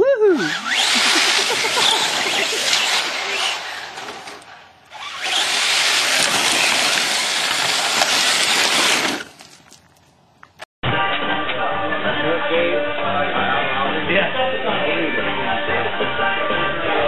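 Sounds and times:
toy truck motor and gear whine: 0:00.4 - 0:09.8
tyres churning dirt: 0:00.4 - 0:10.6.

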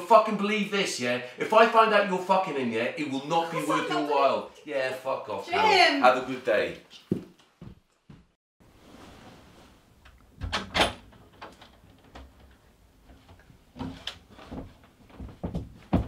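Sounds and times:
door shutting with a thud: 0:10.4 - 0:11.2
door opening knocks and clicks: 0:10.4 - 0:12.5.

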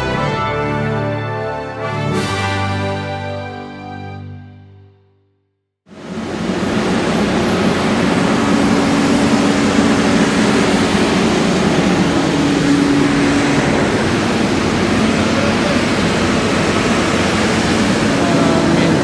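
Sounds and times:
diesel engines and pumps running: 0:05.9 - 0:19.0
steady low hum: 0:06.0 - 0:19.0.

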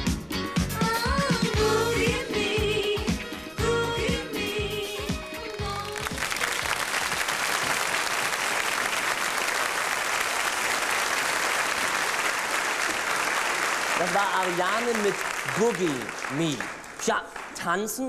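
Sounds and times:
disco song: 0:00.0 - 0:06.8
audience applauding: 0:05.8 - 0:18.0.

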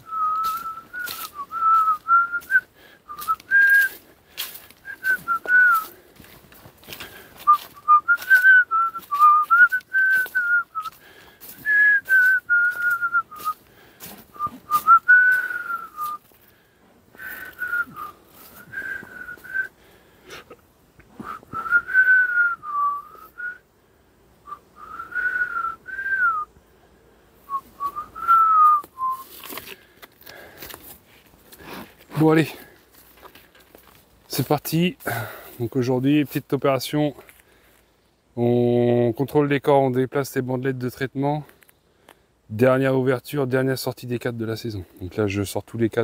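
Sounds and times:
person whistling a tune: 0:00.0 - 0:04.0, 0:04.8 - 0:06.0, 0:07.4 - 0:13.6, 0:14.3 - 0:16.3, 0:17.2 - 0:19.7, 0:21.2 - 0:23.6, 0:24.5 - 0:26.5, 0:27.5 - 0:29.4.

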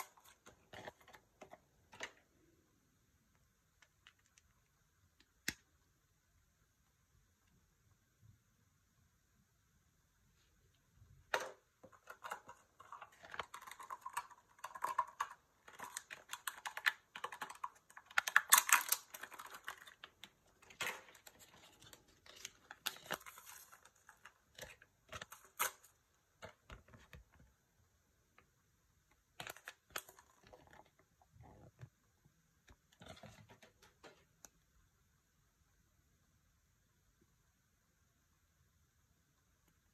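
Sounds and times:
wrapper crinkling: 0:12.0 - 0:25.9.

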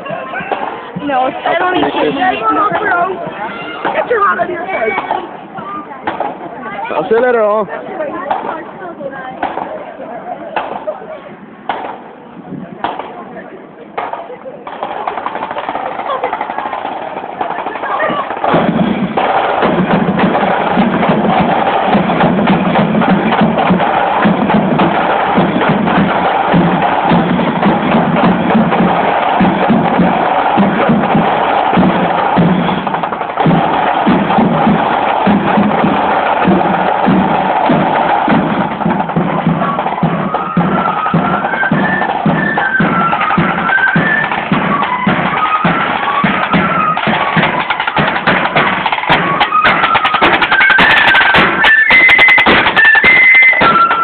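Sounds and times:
side drum beating: 0:00.0 - 0:08.7, 0:14.0 - 0:54.0
bass drum: 0:18.0 - 0:51.8
high flute melody: 0:21.3 - 0:54.0.

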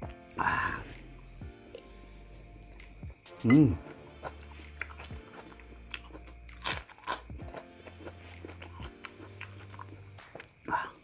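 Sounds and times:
crackers crunching: 0:03.8 - 0:11.0.

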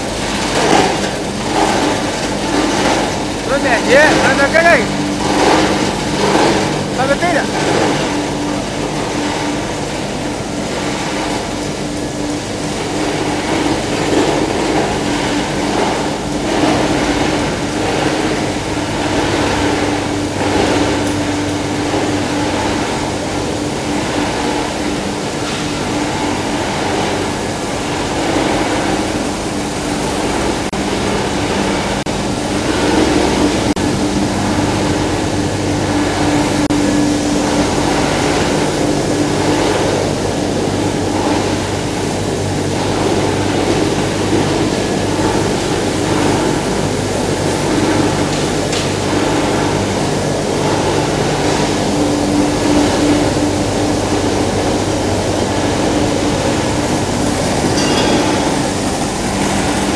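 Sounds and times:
machinery din: 0:00.0 - 0:11.6, 0:56.5 - 0:59.9
steady machine hum: 0:00.0 - 0:59.9.

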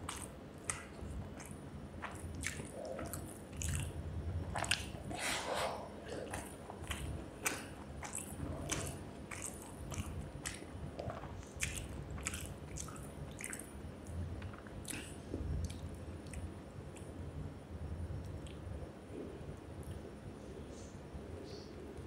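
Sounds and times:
mouth clicks and smacks: 0:00.0 - 0:05.2, 0:06.1 - 0:17.1
person chewing food: 0:00.0 - 0:17.1.

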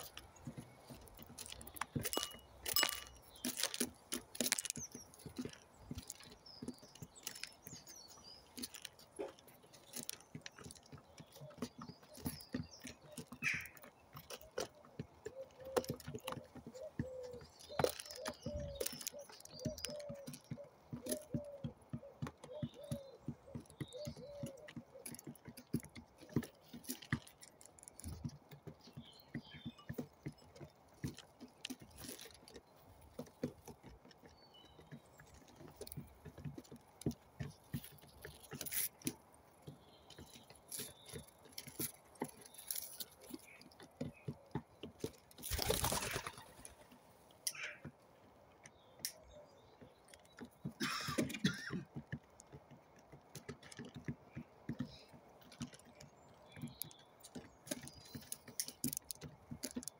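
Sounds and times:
beaks tapping on grain and wood: 0:00.0 - 0:59.9
pigeons cooing: 0:14.4 - 0:25.3.

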